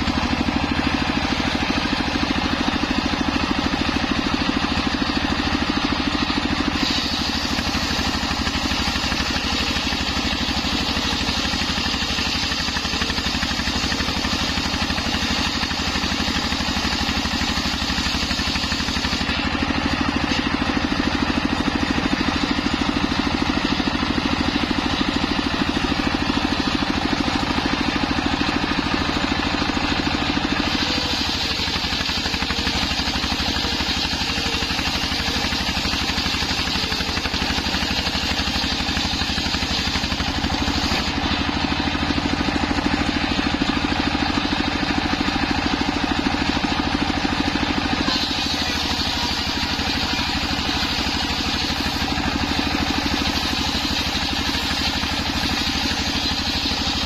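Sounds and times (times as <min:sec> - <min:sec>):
diesel engine running: 0:00.0 - 0:57.0
circular saw ripping wood: 0:03.4 - 0:43.8, 0:44.9 - 0:57.0.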